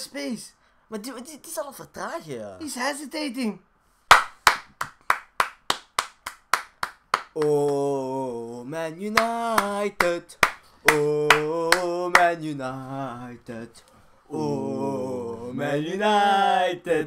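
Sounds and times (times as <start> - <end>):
hand claps: 4.1 - 7.8, 9.2 - 12.3
men singing a chant: 7.4 - 17.0.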